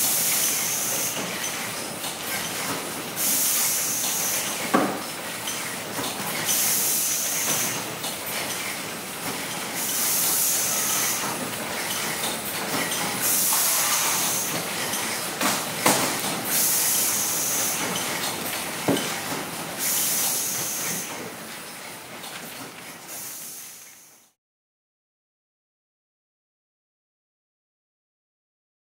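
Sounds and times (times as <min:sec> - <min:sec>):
machine hiss: 0:00.0 - 0:01.3, 0:03.2 - 0:04.6, 0:06.4 - 0:07.9, 0:09.7 - 0:11.4, 0:13.2 - 0:14.9, 0:15.5 - 0:18.1, 0:19.7 - 0:21.2, 0:23.1 - 0:24.3
packing machinery running: 0:00.0 - 0:24.0.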